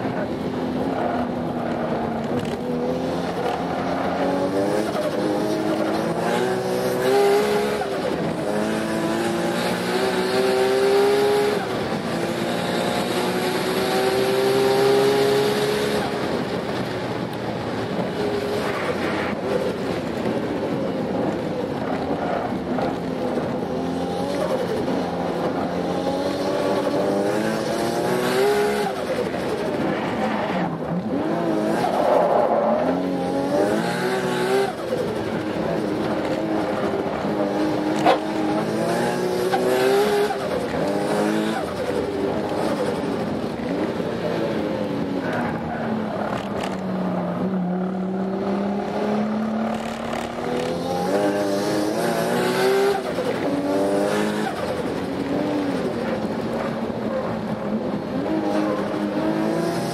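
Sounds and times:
race car engine revving: 0:23.4 - 0:59.9.

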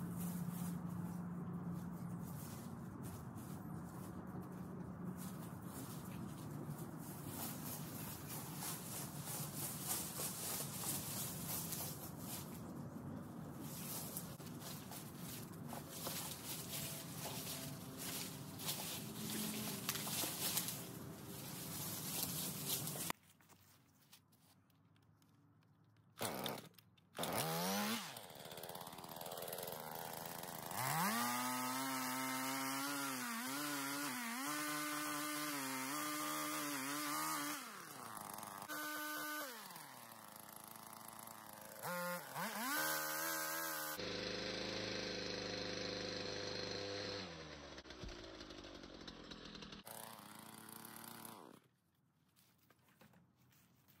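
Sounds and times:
pole saw cutting wood: 0:13.7 - 0:23.2, 0:26.2 - 0:51.7.

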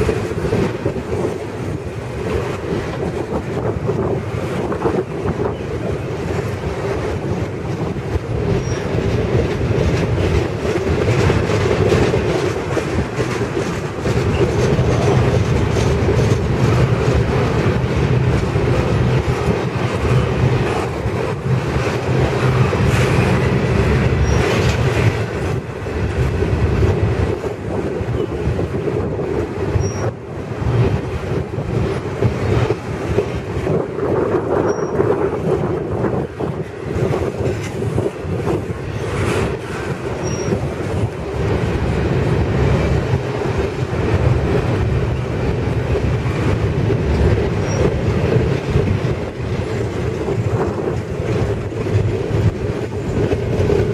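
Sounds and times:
freight train wheels rumbling: 0:00.0 - 0:53.9
wheels clacking over rail joints: 0:00.0 - 0:53.9
faint high wheel squeaks: 0:34.6 - 0:35.0, 0:40.2 - 0:40.6.

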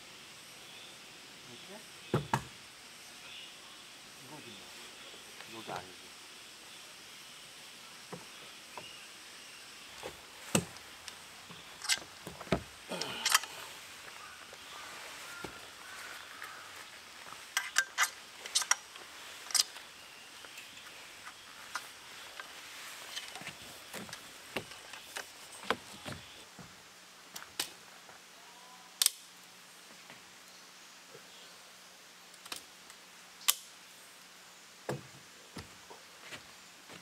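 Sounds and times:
camping gear clicks and knocks: 0:10.0 - 0:13.6, 0:17.4 - 0:26.4.

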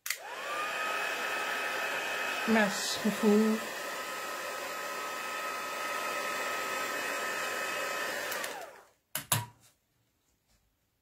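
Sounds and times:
heat tool blowing: 0:00.1 - 0:08.9.

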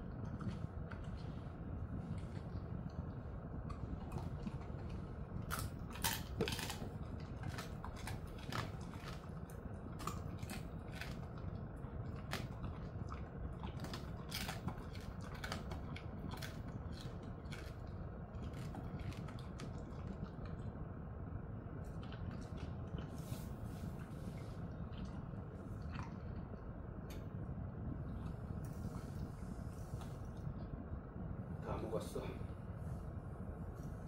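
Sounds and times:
dog chewing hard treat: 0:00.0 - 0:20.7
steady low hum: 0:00.0 - 0:34.0.

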